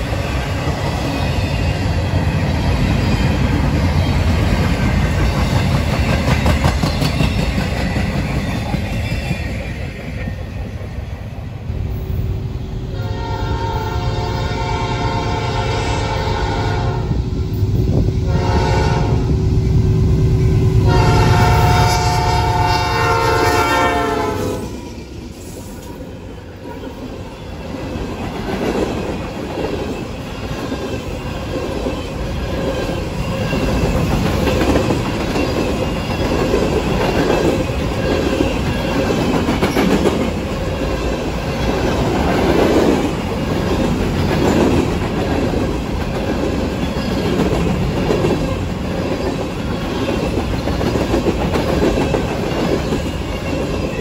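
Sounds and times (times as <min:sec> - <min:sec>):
train wheels clacking over rails: 0:00.0 - 0:11.4, 0:27.0 - 0:54.0
locomotive horn chord: 0:12.9 - 0:17.2, 0:18.3 - 0:19.3, 0:20.8 - 0:24.7.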